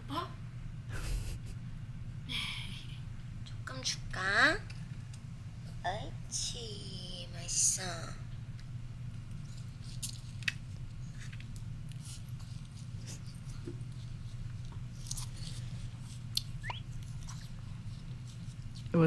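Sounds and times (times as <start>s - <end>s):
steady low hum: 0.0s - 19.0s
person chewing food: 12.6s - 18.9s.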